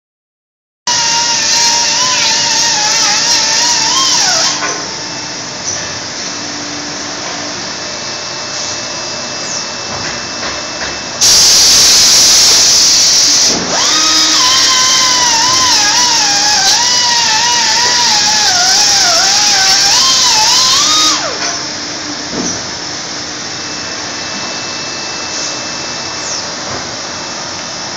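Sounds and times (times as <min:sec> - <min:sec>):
rotary tool motor whine: 0:00.9 - 0:05.8, 0:11.2 - 0:21.6
loud rush of hiss: 0:11.2 - 0:15.8.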